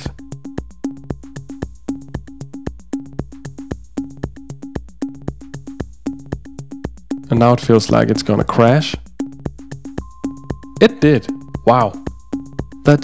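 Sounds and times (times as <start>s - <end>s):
electronic music with drum-machine beat: 0.0s - 13.0s.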